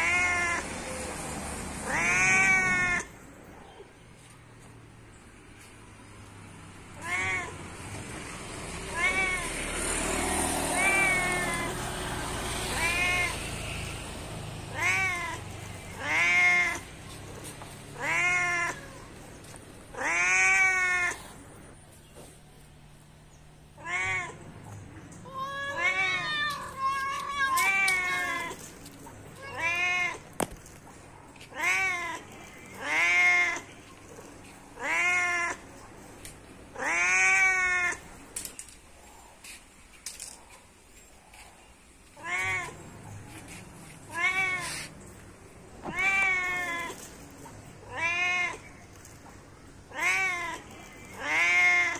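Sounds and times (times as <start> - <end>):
cat meowing: 0.0 - 0.8, 1.8 - 3.2, 6.9 - 8.0, 8.7 - 9.9, 10.6 - 11.9, 12.6 - 14.0, 14.7 - 19.3, 19.9 - 21.6, 23.7 - 30.6, 31.4 - 35.9, 36.7 - 38.2, 42.1 - 45.0, 45.8 - 49.2, 49.9 - 51.9.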